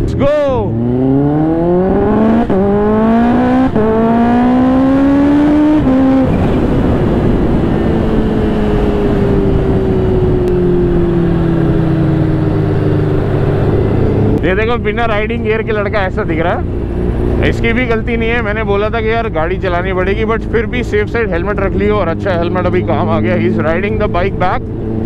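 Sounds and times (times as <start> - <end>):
motorcycle accelerating hard: 0.0 - 25.0
wind and road rush: 0.0 - 25.0.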